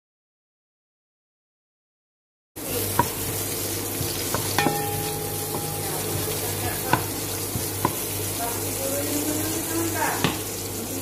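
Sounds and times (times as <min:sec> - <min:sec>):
onion sizzling in oil: 0:02.6 - 0:11.0.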